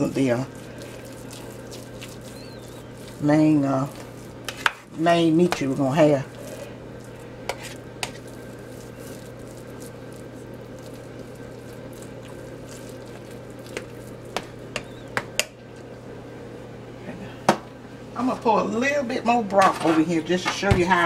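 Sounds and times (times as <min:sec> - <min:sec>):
spoon squishing stuffing: 0:00.0 - 0:15.5.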